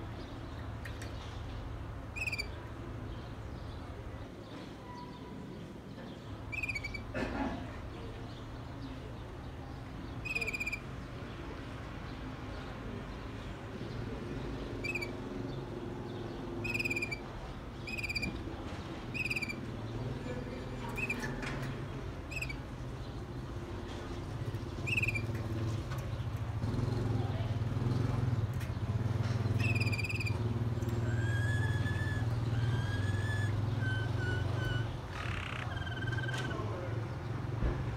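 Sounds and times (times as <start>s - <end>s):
canary chirps: 0.0s - 4.2s, 4.8s - 7.2s, 8.0s - 37.6s
low city rumble: 0.0s - 37.9s.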